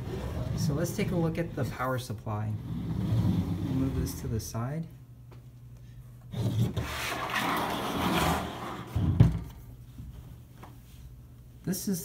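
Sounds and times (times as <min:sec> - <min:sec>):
metal box scraping on table: 0:06.3 - 0:09.1.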